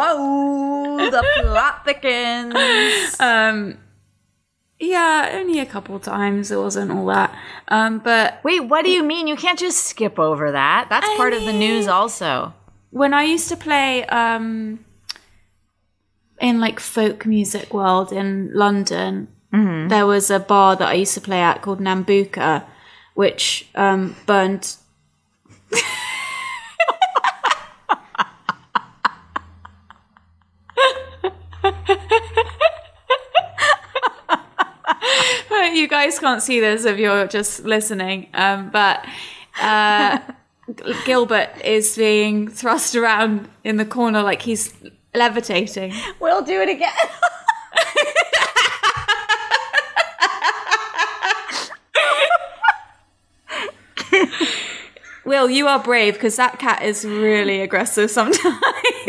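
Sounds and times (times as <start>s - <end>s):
people laughing: 0.8s - 1.9s, 25.8s - 35.5s, 46.9s - 52.9s.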